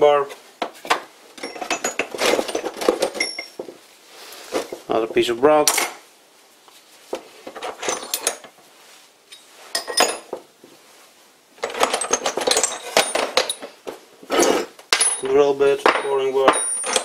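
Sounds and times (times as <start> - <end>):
metal tools clinking and rattling: 1.4 - 3.7, 7.5 - 8.6, 9.3 - 10.4, 11.6 - 17.0.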